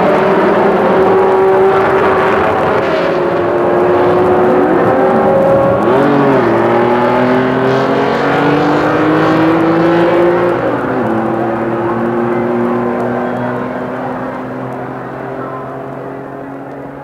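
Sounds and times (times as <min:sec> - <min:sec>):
racing engines revving: 0:00.0 - 0:17.0.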